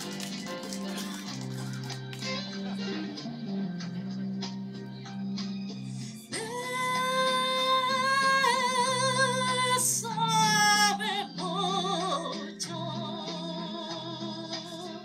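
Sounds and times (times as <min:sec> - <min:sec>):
low sustained instrumental accompaniment: 0:00.0 - 0:15.0
woman singing with vibrato: 0:06.3 - 0:15.0.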